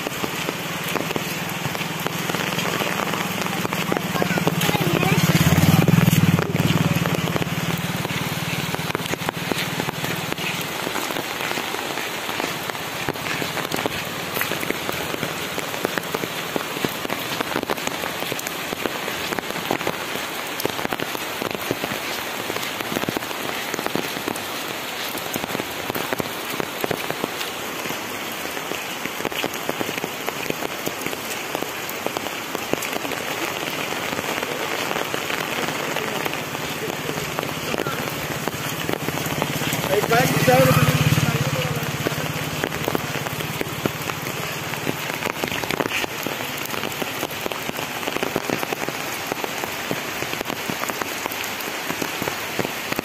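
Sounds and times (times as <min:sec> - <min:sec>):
rain on an umbrella: 0:00.0 - 0:53.0
rain patter on ground and leaves: 0:00.0 - 0:53.0.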